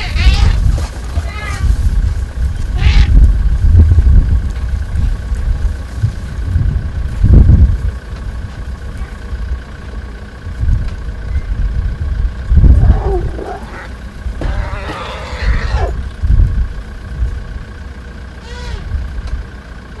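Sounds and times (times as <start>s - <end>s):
elephants calling: 0.0s - 3.5s, 12.6s - 16.2s, 17.7s - 19.1s
vehicle engine rumbling: 0.0s - 20.0s.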